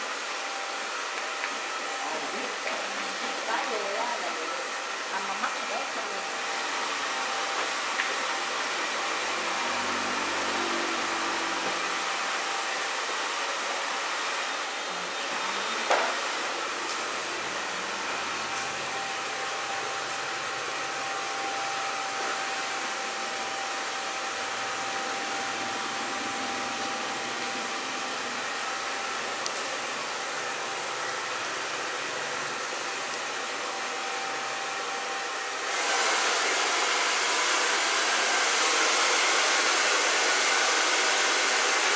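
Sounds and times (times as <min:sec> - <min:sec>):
hair dryer blowing: 0:00.0 - 0:41.9.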